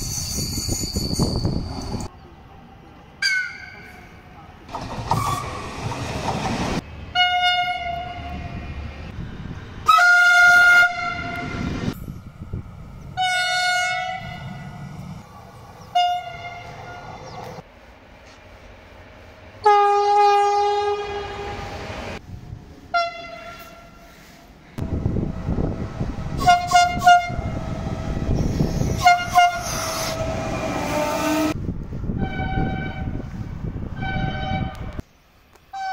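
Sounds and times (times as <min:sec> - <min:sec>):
rumble of passing rail cars: 0:00.0 - 0:35.9
train horn blasts: 0:09.9 - 0:11.7, 0:13.2 - 0:14.6, 0:15.9 - 0:17.1, 0:19.6 - 0:21.8, 0:22.9 - 0:24.0, 0:26.3 - 0:28.2, 0:28.9 - 0:31.6, 0:32.2 - 0:33.3, 0:34.0 - 0:35.0.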